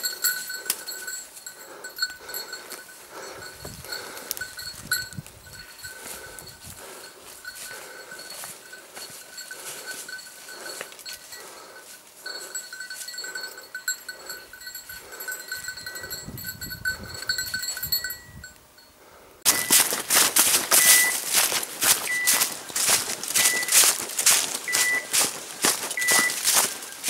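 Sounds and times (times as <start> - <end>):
dog bell jingling: 0.0 - 18.9, 19.5 - 27.0
footsteps in dry leaves: 2.2 - 13.1, 19.5 - 27.0
short high beep: 19.5 - 19.8, 20.8 - 21.2, 22.1 - 22.5, 23.4 - 23.8, 24.7 - 25.1, 26.0 - 26.4.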